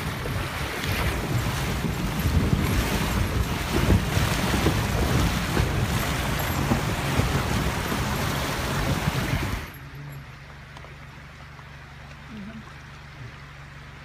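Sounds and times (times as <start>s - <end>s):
wind buffeting microphone: 0.0s - 9.8s
creek water rushing and splashing: 0.0s - 14.0s
low hum: 0.0s - 14.0s.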